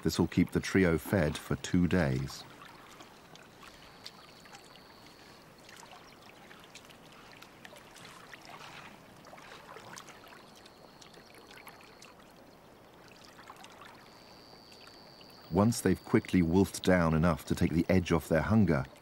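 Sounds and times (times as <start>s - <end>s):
water splashing and trickling: 0.0s - 19.0s
small wet clicks: 2.1s - 15.4s.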